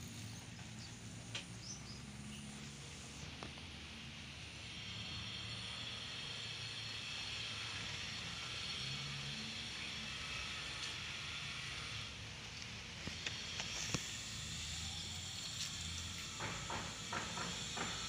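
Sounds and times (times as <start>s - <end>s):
high hiss: 0.0s - 18.0s.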